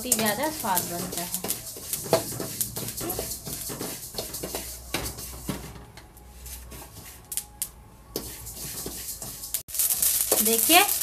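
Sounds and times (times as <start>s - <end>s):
metal spoon scraping a pan: 0.0s - 11.0s
seeds crackling: 7.3s - 11.0s.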